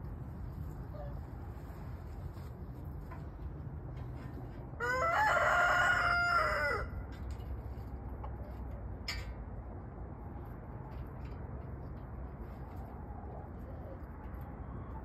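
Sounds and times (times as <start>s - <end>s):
rooster crowing: 4.8s - 7.0s.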